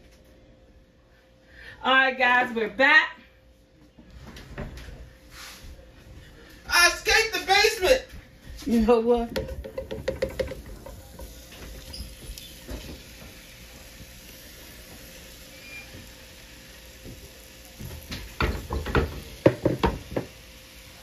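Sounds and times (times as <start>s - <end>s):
pot clattering knocks: 9.3s - 11.0s
meat dropping into metal pot: 9.4s - 11.0s.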